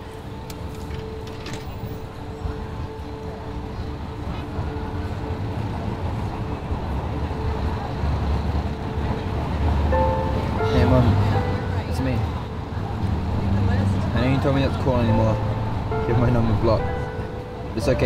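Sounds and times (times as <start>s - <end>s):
street traffic rumble: 0.0s - 18.0s.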